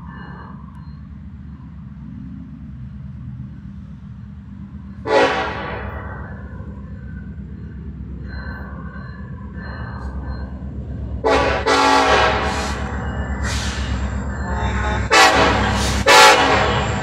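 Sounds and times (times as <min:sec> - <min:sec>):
diesel locomotives rumbling: 0:00.0 - 0:17.0
locomotive air horn blast: 0:05.0 - 0:06.2, 0:11.2 - 0:17.0.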